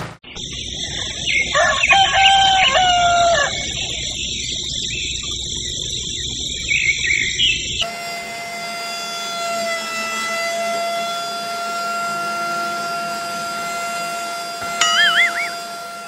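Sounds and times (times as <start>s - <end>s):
steady high-pitched background: 0.3s - 7.8s, 14.6s - 16.0s
rooster crowing: 1.0s - 3.8s, 14.6s - 15.8s.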